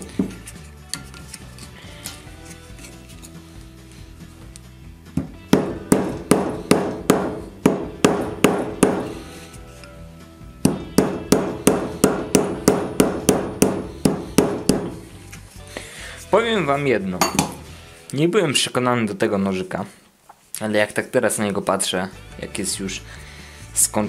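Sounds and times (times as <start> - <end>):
hammer striking metal: 5.5 - 9.2, 10.7 - 15.0, 17.2 - 17.7.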